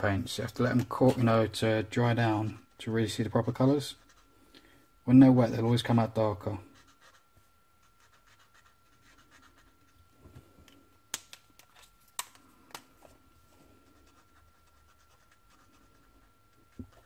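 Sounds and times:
marker tip scratching on paper: 0:04.0 - 0:04.2, 0:06.8 - 0:07.2, 0:07.8 - 0:09.9, 0:14.0 - 0:16.0.

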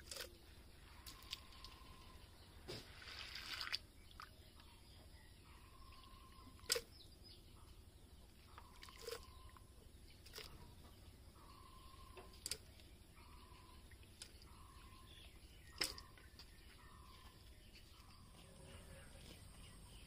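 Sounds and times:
corn kernels sloshing in water: 0:02.8 - 0:04.3.

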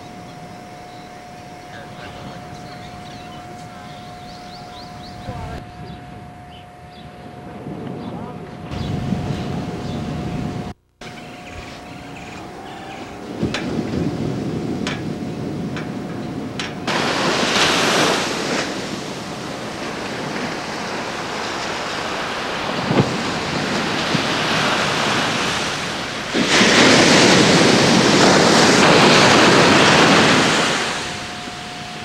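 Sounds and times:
ocean surf breaking on beach: 0:12.2 - 0:32.0.

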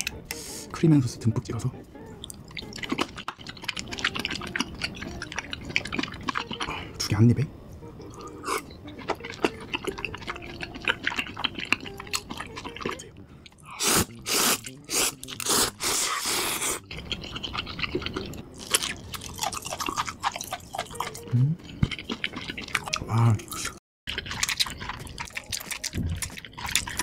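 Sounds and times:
wet chewing: 0:02.1 - 0:07.0, 0:08.0 - 0:27.0
slurping noodles: 0:13.7 - 0:18.3.

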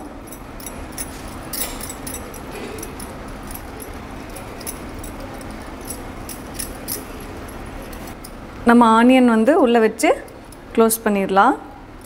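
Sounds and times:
metal bangles clinking: 0:00.0 - 0:08.5
low background noise: 0:00.0 - 0:12.0.

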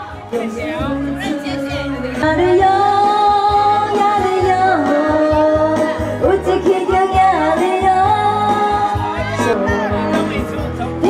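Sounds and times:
instrumental backing with bass beat: 0:00.0 - 0:11.0
person singing: 0:00.0 - 0:11.0.

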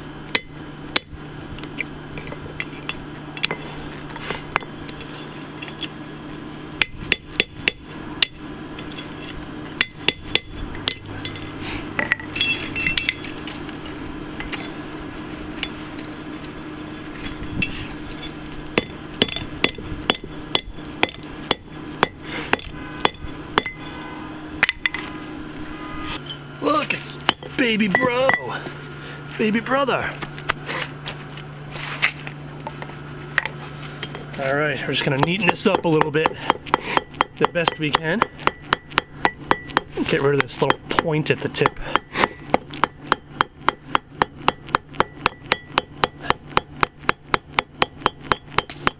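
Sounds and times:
hammer striking metal on anvil: 0:00.3 - 0:01.1, 0:09.8 - 0:13.4, 0:18.8 - 0:23.9, 0:27.3 - 0:28.5, 0:35.0 - 0:48.9.

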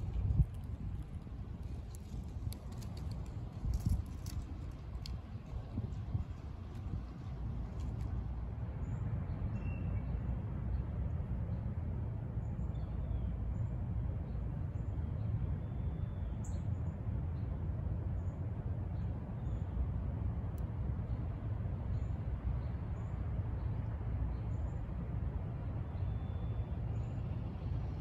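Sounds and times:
low outdoor rumble: 0:00.0 - 0:28.0.

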